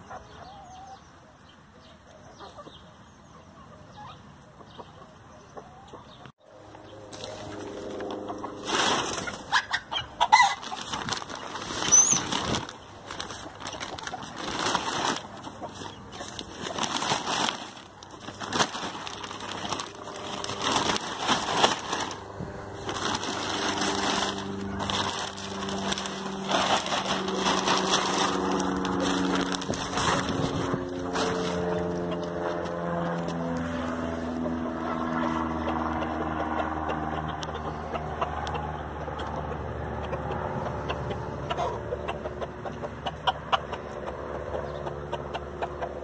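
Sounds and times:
plastic tarp crinkling: 7.1 - 9.7, 10.4 - 33.5
low droning hum: 10.1 - 39.0.

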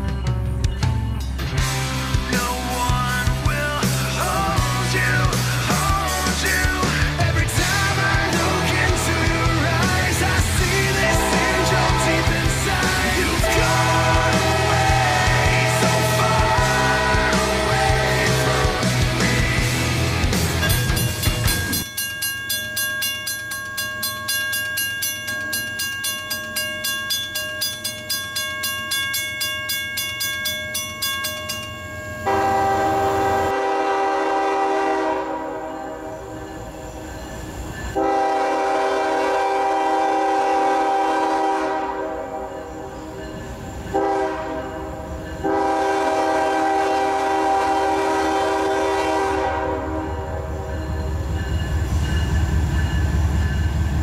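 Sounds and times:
railroad crossing bell ringing: 0.0 - 19.3, 20.1 - 54.0
train horn blasts: 10.8 - 12.4, 13.3 - 19.2, 32.2 - 36.5, 38.0 - 43.0, 43.9 - 51.0.

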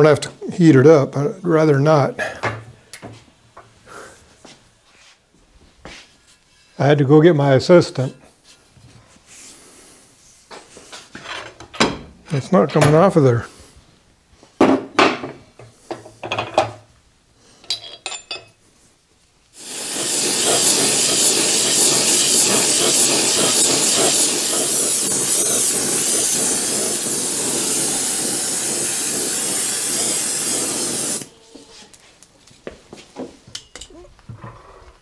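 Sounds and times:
torch flame hissing: 19.5 - 31.3.

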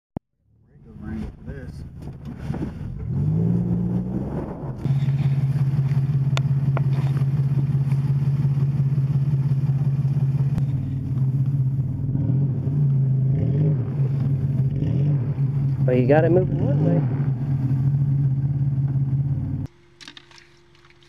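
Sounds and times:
engine at high revs: 2.9 - 19.7.

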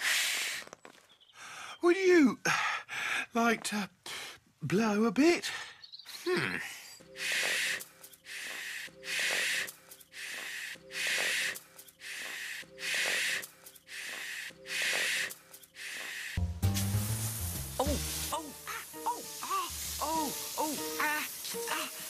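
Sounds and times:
heavy rhythmic breathing: 5.4 - 16.5.

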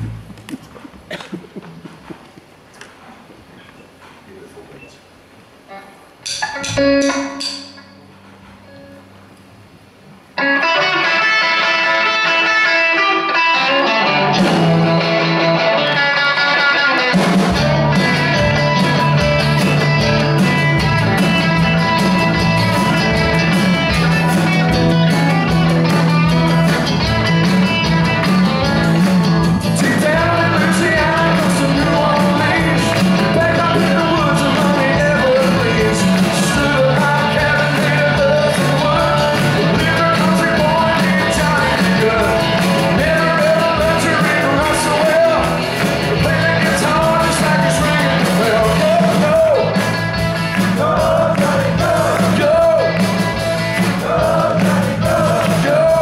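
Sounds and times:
bass and drums: 0.0 - 2.7, 13.4 - 56.0
electric guitar: 5.7 - 9.2, 10.3 - 56.0
man singing: 29.6 - 50.0, 50.6 - 53.0, 53.8 - 56.0.

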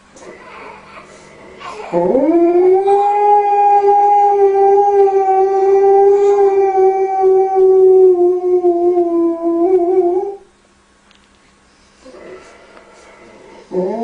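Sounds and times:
dog howling: 0.3 - 10.5.

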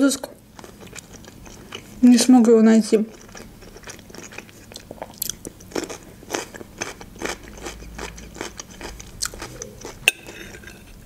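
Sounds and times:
crunchy pickle chewing: 0.6 - 2.0, 3.1 - 10.8.

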